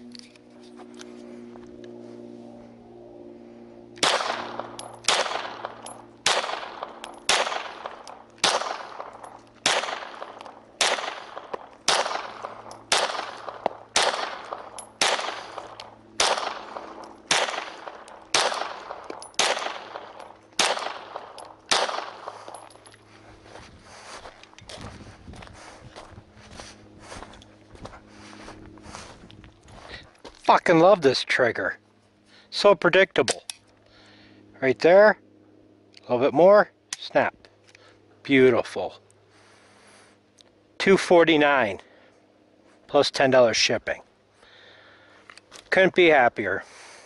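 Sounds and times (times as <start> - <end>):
pistol shots: 4.0 - 22.6.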